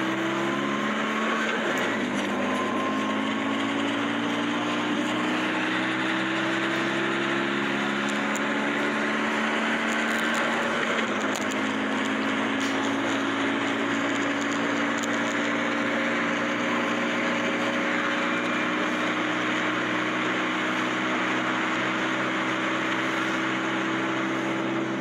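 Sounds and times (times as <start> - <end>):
simulated car engine drone: 0.0 - 25.0.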